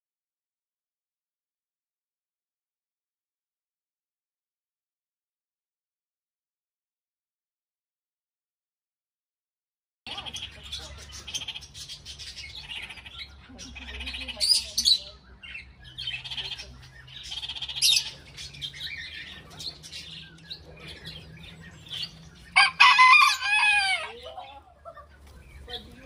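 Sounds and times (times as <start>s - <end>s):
parakeet chattering: 10.1s - 20.2s.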